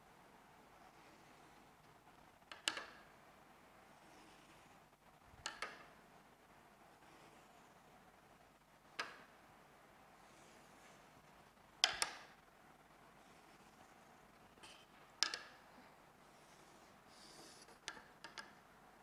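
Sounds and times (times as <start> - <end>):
ruler tapping whiteboard: 11.8 - 12.3, 15.2 - 15.5.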